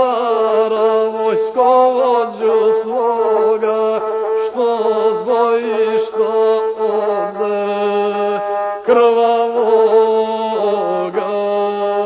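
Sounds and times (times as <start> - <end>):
bowed single-string fiddle: 0.0 - 12.0.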